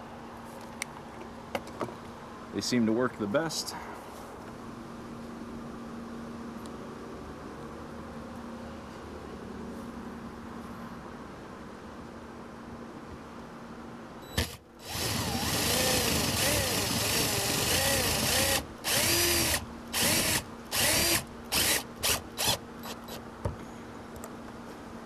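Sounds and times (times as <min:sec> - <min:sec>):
cordless drill driving screws: 0:14.4 - 0:23.2.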